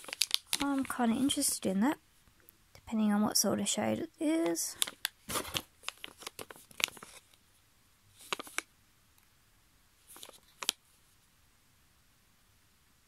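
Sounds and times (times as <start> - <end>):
foil sachet crinkling: 0.0 - 1.6, 4.5 - 7.4, 8.2 - 8.7, 10.1 - 10.8.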